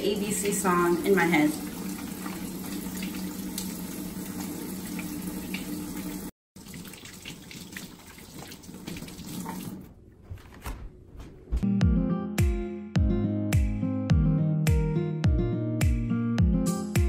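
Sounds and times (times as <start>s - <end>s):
faucet water running into sink: 0.0s - 9.9s
hands washing under water: 0.4s - 10.6s.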